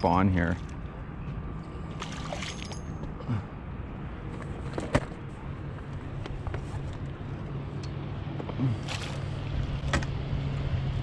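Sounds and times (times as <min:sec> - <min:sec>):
water: 0:00.2 - 0:00.8, 0:01.8 - 0:03.0.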